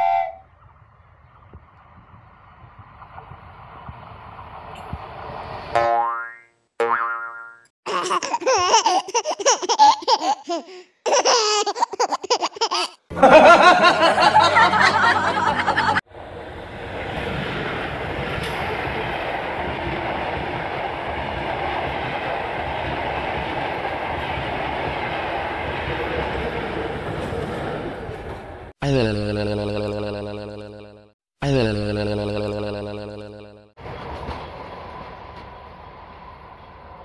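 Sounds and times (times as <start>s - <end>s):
train wheels rumbling on rails: 0.8s - 5.7s, 14.6s - 28.7s, 33.8s - 37.0s
pitched-up wobbling laughter effect: 6.8s - 16.0s, 28.8s - 33.6s.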